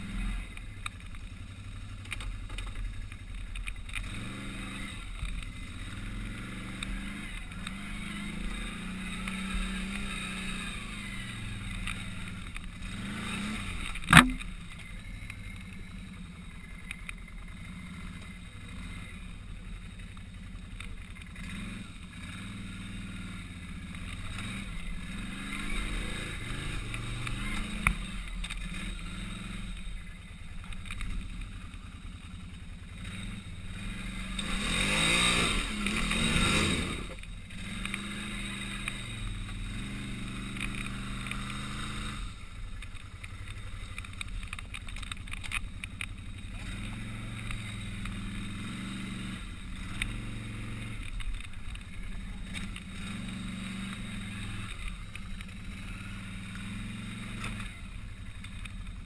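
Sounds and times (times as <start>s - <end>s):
engine revving: 0.0s - 0.9s, 1.7s - 59.0s
sharp knock: 14.1s - 14.4s.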